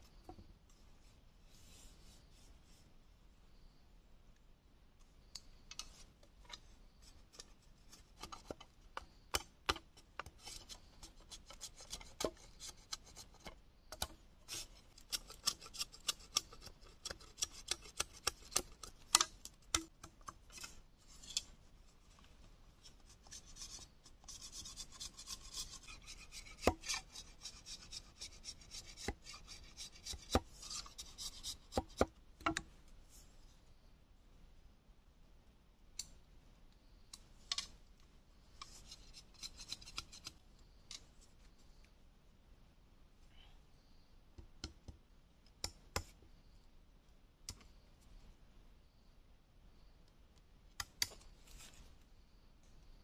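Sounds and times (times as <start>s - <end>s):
blade scraping bamboo: 10.2s - 13.5s, 14.5s - 21.5s, 22.8s - 32.0s, 38.6s - 40.4s.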